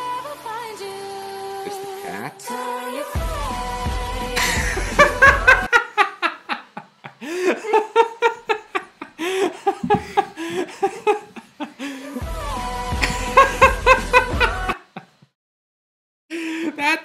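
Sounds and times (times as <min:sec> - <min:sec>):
music: 0:00.0 - 0:05.7, 0:11.8 - 0:14.8
person laughing high-pitched: 0:04.4 - 0:12.2, 0:13.0 - 0:15.2, 0:16.4 - 0:17.0.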